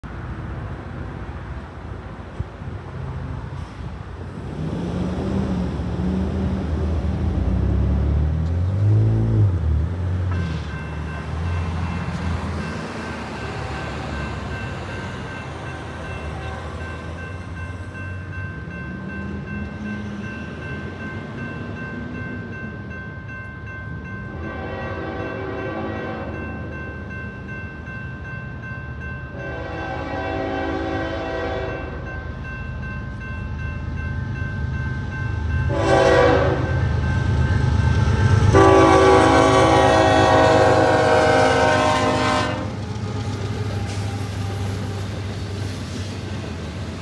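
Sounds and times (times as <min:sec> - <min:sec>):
road traffic passing: 0:00.0 - 0:47.0
crossing bells ringing: 0:07.7 - 0:42.5
train horn: 0:24.3 - 0:26.5, 0:29.3 - 0:32.0, 0:35.7 - 0:36.8, 0:38.4 - 0:42.8.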